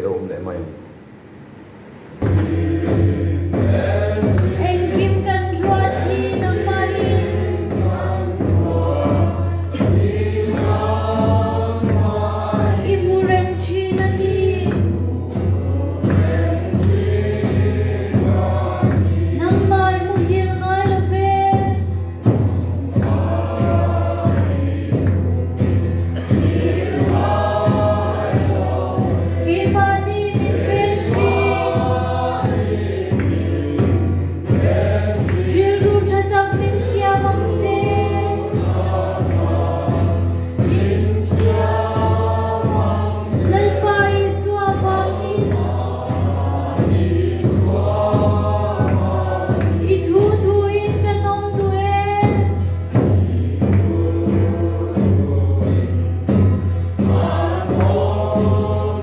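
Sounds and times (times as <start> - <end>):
congregation singing a hymn: 2.1 - 59.0
steady beat: 2.1 - 59.0.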